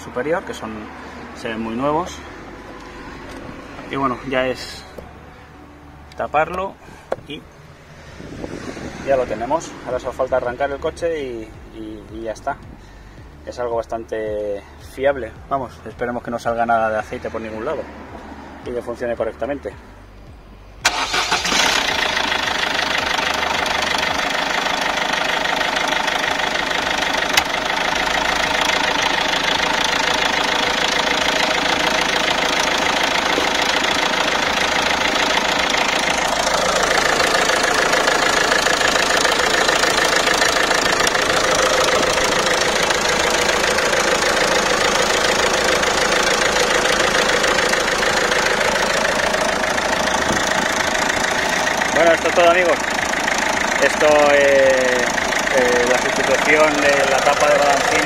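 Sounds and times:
diesel engine idling clatter: 20.8 - 58.0.

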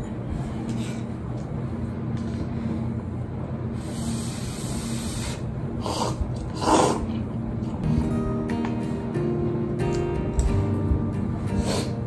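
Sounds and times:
steady low hum: 0.0 - 12.0
person slurping noodles: 4.0 - 7.2.

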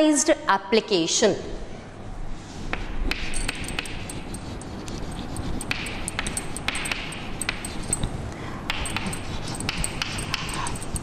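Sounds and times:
chalk writing on blackboard: 3.1 - 8.1, 8.7 - 11.0.

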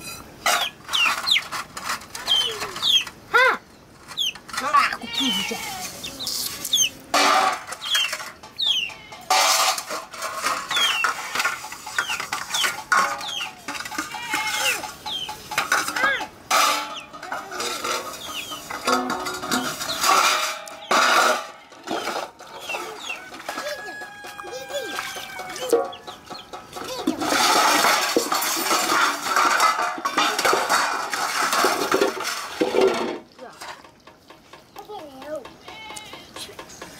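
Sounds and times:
chicks peeping: 0.6 - 1.5, 2.2 - 3.1, 5.9 - 7.0, 7.7 - 9.0, 10.7 - 11.2, 11.8 - 13.6, 14.5 - 15.4, 18.1 - 19.0, 22.5 - 27.0
steel wool scouring metal: 4.4 - 32.8.

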